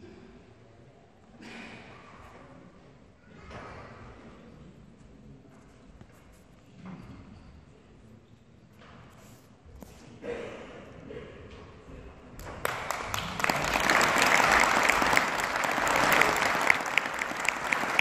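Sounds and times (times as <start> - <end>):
audience clapping: 12.4 - 18.0.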